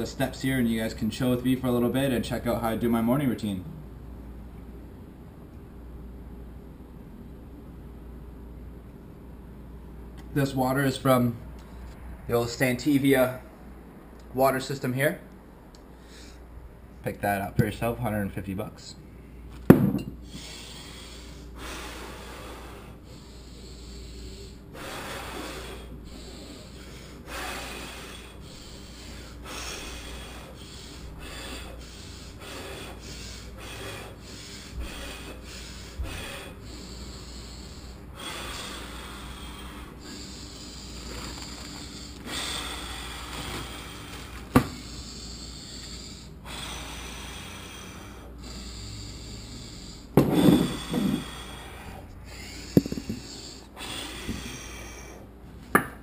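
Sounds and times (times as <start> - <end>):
person breathing forcefully: 19.8 - 55.3.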